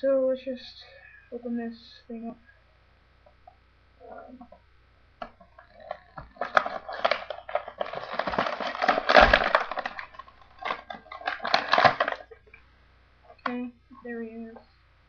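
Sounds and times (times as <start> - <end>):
plastic and card crinkling: 5.2 - 12.6
packaging being torn open: 5.8 - 12.4.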